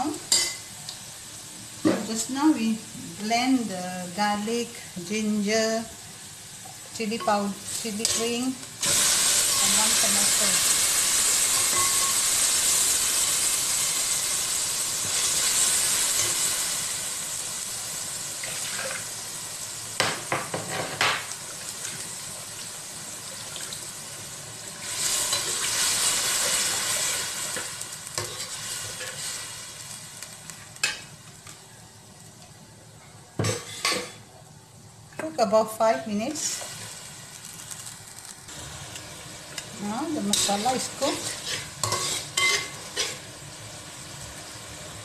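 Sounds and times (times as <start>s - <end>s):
paste sizzling in hot oil: 5.9s - 20.6s, 21.2s - 31.4s, 36.4s - 45.0s
metal spatula scraping a pan: 40.2s - 43.3s.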